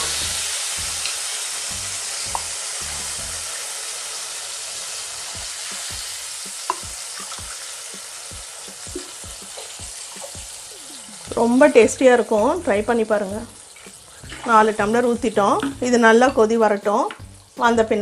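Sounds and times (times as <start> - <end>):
hot oil sizzling: 0.0 - 18.0
water pouring: 13.2 - 16.0.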